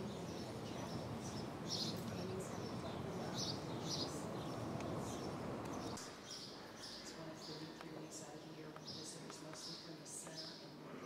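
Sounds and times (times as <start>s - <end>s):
steady background hum: 0.0s - 6.0s
birds chirping: 0.0s - 10.9s.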